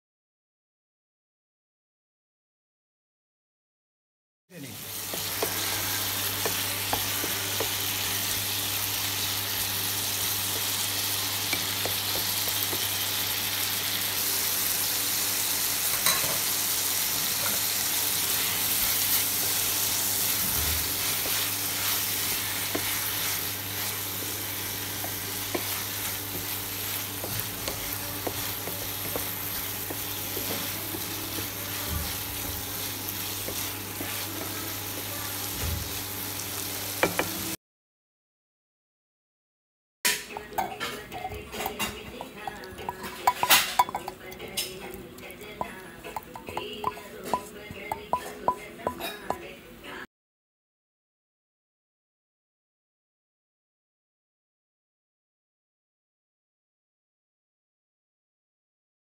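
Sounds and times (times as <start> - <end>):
onion and tomato sizzling in oil: 4.6 - 37.6, 40.3 - 50.0
wooden spatula scraping pan: 18.4 - 35.9.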